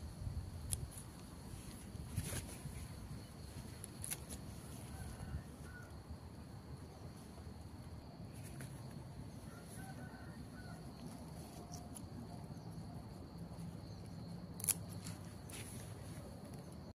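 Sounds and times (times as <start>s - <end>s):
insects trilling: 0.0s - 16.9s
garden scissors snipping a stem: 0.6s - 1.0s, 3.8s - 4.4s, 14.6s - 15.2s.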